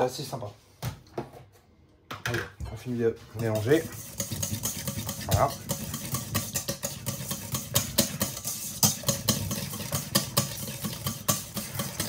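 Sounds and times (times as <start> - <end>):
whisk scraping a metal bowl: 3.1 - 12.0.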